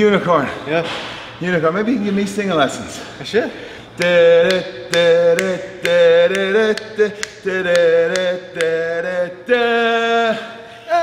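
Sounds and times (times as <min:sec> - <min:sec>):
sharp ticks: 0:04.0 - 0:08.8
man singing long held notes: 0:04.0 - 0:11.0.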